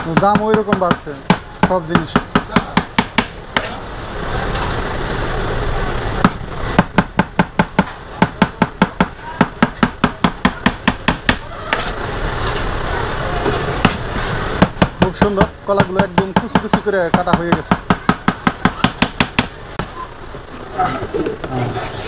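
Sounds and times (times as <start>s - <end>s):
knife chopping on plastic board: 0.0s - 3.7s, 14.6s - 19.5s.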